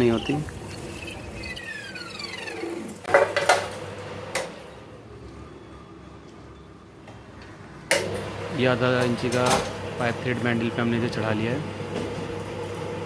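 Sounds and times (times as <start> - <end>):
falling machine whine: 0.0 - 3.1.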